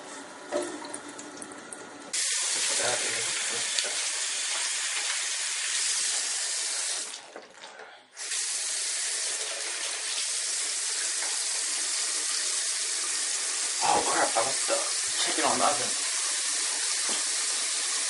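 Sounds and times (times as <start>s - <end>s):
tap running into sink: 2.5s - 5.2s, 16.8s - 17.4s.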